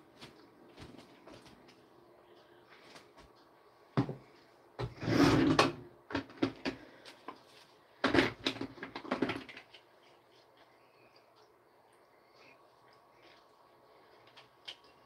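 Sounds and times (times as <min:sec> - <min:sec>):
knocks and clatters of objects: 0:04.0 - 0:07.4, 0:08.0 - 0:09.8.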